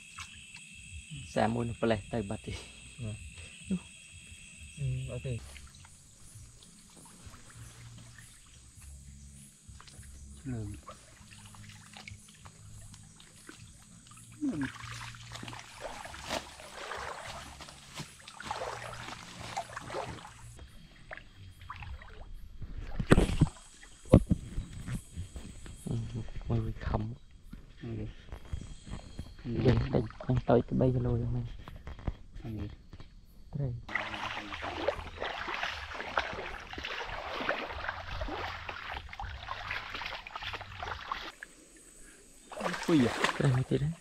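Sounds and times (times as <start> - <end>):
shallow water splashing: 9.7 - 24.1, 33.9 - 41.8, 42.4 - 44.0
microphone handling rumble: 24.1 - 27.2.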